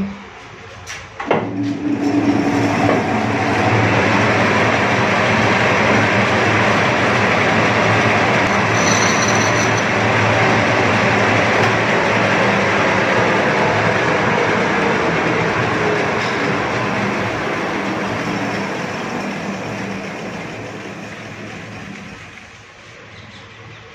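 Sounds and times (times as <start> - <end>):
metal lathe running: 1.5 - 22.6
high squeal from cutting tool: 8.5 - 9.9.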